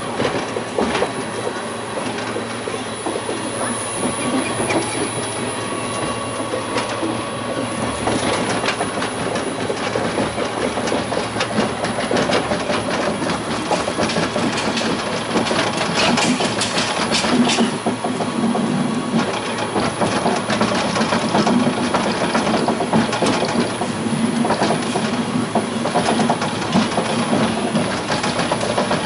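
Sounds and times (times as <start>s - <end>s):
monorail wheels rolling on rail: 0.0s - 29.0s.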